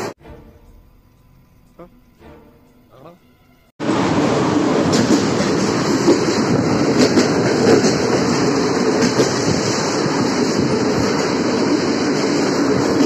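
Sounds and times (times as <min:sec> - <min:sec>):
train wheels rumbling on rail: 0:03.8 - 0:13.0.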